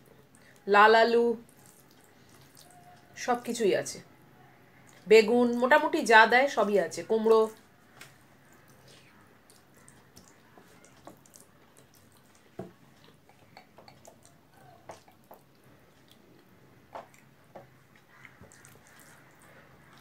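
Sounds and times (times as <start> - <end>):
chewing clicks and smacks: 1.4 - 3.0, 7.6 - 17.3
fingers mixing rice on plate: 7.5 - 20.0.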